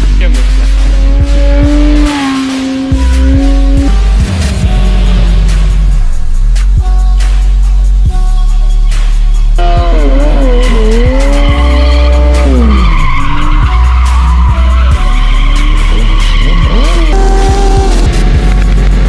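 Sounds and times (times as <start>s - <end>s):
car engine revving: 0.0s - 6.8s, 9.6s - 19.0s
music with heavy bass beat: 0.0s - 19.0s
tyres screeching: 9.8s - 18.2s.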